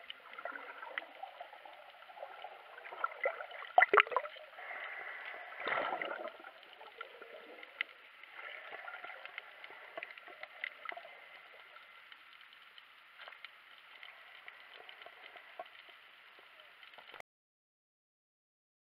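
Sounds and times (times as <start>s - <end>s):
rush of bubbles underwater: 0.0s - 12.1s
faint wash of water: 0.0s - 17.2s
small clicks and crackles: 0.0s - 17.2s.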